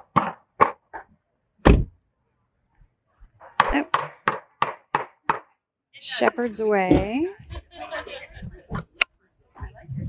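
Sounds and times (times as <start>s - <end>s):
car door shutting: 1.6s - 1.9s.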